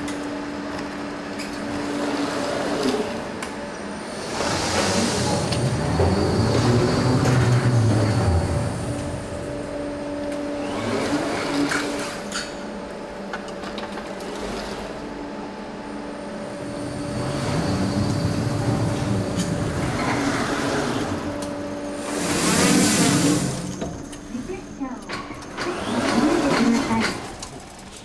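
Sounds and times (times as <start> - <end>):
machine motor hum with whine: 0.0 - 28.0
mechanism clicks and clanks: 10.2 - 15.0, 18.0 - 28.0.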